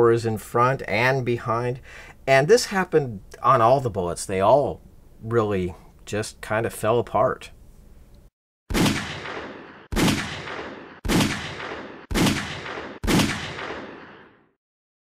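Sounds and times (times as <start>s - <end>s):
pistol shots: 8.7s - 14.5s.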